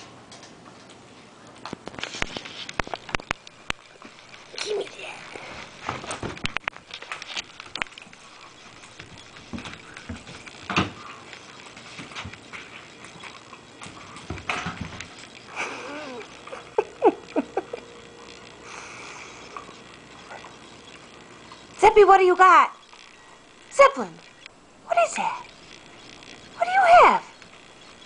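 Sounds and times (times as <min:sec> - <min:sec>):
puppy chewing toy: 0:02.1 - 0:21.8.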